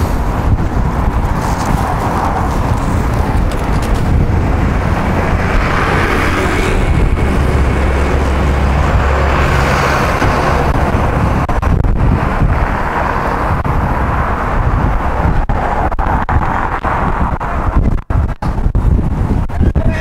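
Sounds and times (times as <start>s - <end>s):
truck diesel engine rumbling: 0.0s - 15.9s
bicycle rolling noise: 0.0s - 19.4s
wind: 0.0s - 20.0s.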